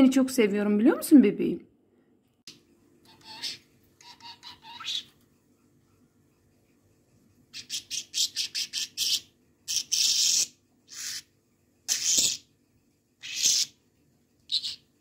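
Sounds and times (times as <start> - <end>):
budgerigar chirping: 3.1 - 5.1, 7.5 - 11.3, 11.9 - 12.5, 13.2 - 13.8, 14.5 - 14.9
budgerigar squawking: 3.1 - 5.1, 7.5 - 11.3, 13.2 - 13.8.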